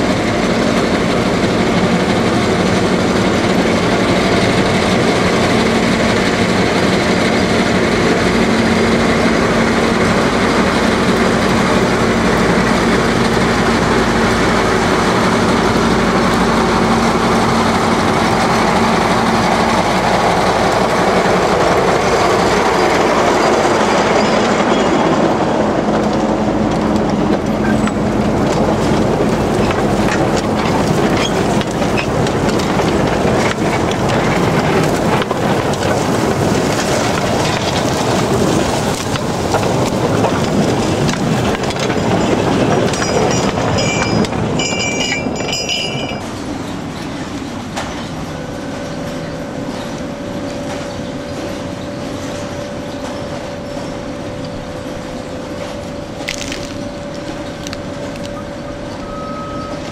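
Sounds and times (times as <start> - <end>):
diesel locomotive engine drone: 0.0 - 59.9
wagon wheels clattering over rail joints: 0.0 - 59.9
thin wheel squeal: 58.4 - 59.9.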